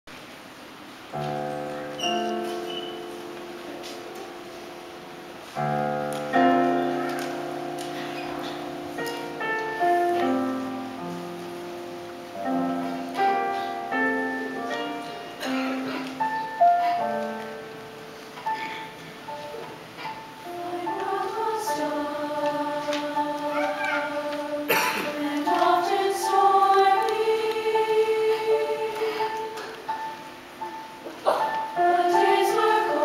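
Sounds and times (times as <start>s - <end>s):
slow solo piano: 1.1s - 27.2s.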